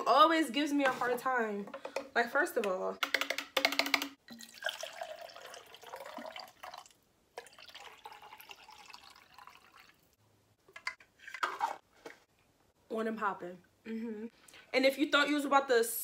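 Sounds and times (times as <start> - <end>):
water pouring into plastic cup: 4.3 - 10.1.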